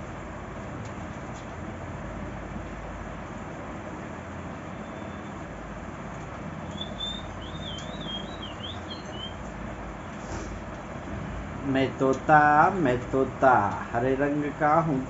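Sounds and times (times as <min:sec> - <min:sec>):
parakeet warbling whistle: 0:06.6 - 0:09.4.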